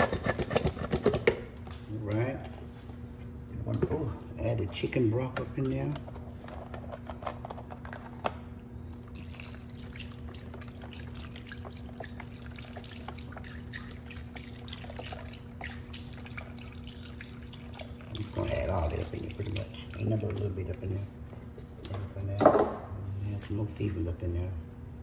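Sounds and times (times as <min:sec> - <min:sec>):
broth trickling and splashing: 0:09.1 - 0:21.0.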